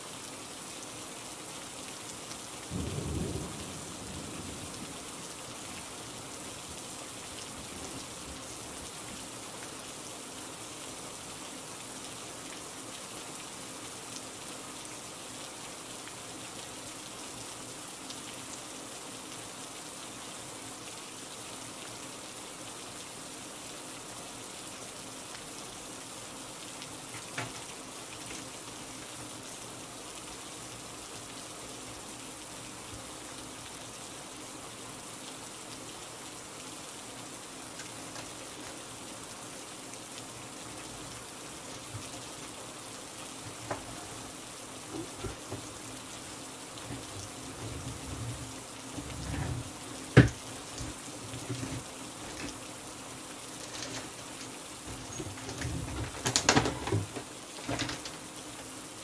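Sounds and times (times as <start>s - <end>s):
steady rain: 0.0s - 59.0s
low rumble of thunder: 2.7s - 5.2s.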